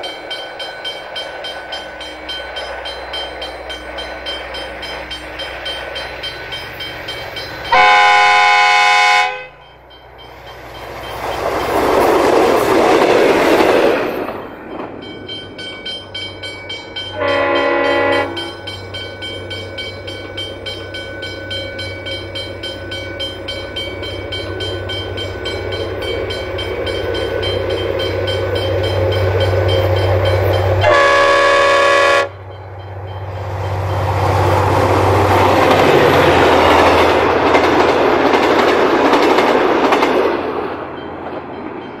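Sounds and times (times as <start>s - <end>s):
diesel locomotive engine: 0.0s - 42.0s
train wheels on rails: 0.0s - 42.0s
train horn blast: 7.7s - 9.6s, 17.1s - 18.5s, 30.8s - 32.4s.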